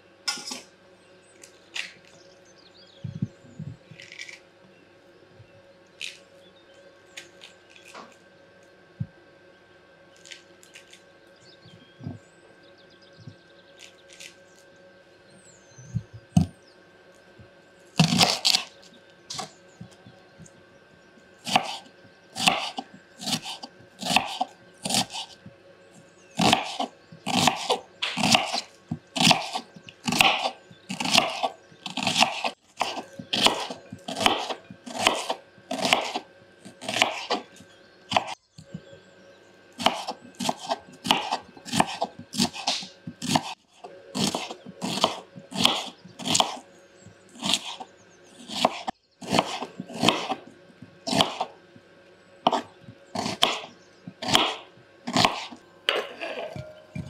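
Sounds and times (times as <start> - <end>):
knife slicing onion on board: 18.0 - 18.7, 21.4 - 25.4, 26.4 - 38.4, 39.8 - 43.6, 44.2 - 46.6, 47.3 - 47.8, 48.4 - 50.5, 51.1 - 51.5, 52.5 - 57.0.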